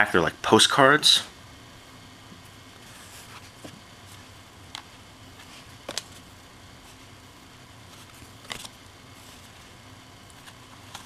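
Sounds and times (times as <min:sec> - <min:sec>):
faint steady hum: 0:00.0 - 0:11.0
cards clicking while shuffled: 0:08.0 - 0:08.8.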